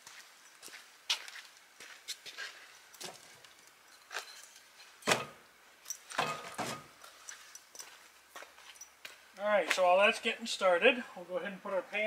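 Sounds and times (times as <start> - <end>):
wood knocking on wood and steel: 5.0 - 5.4, 6.1 - 6.9.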